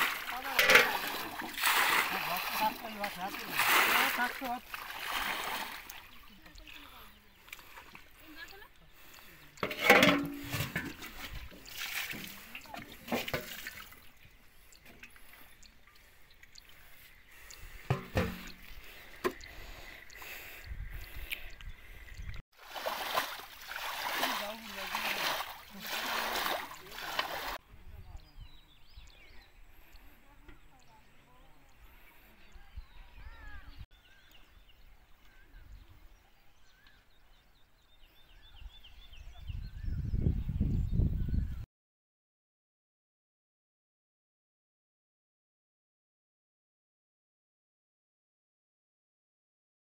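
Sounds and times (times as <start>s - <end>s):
water dripping and splashing: 0.0s - 8.9s, 10.3s - 27.6s
small birds chirping: 5.6s - 9.6s, 13.7s - 22.4s, 27.8s - 41.6s
knocks on metal pot: 17.9s - 18.6s.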